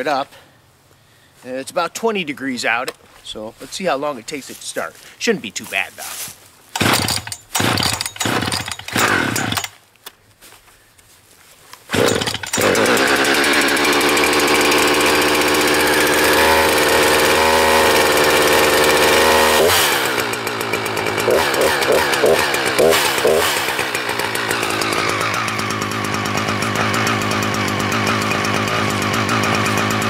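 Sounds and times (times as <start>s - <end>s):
chainsaw pull cord: 6.7s - 9.8s, 11.8s - 30.0s
chainsaw engine running: 6.8s - 9.8s, 11.9s - 30.0s.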